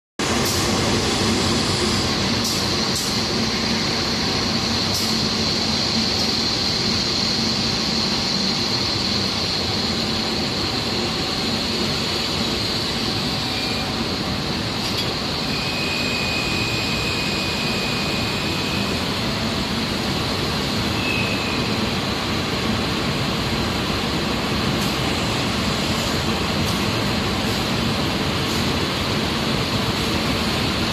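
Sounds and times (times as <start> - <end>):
constant high whine: 0.2 - 30.9
machinery hiss: 0.2 - 30.9
brief thin tone: 15.5 - 18.8.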